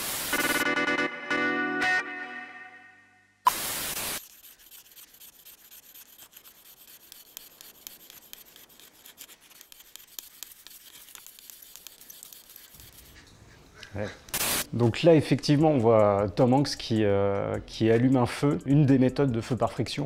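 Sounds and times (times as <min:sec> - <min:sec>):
wooden stick scraping wooden board: 0:04.2 - 0:13.3.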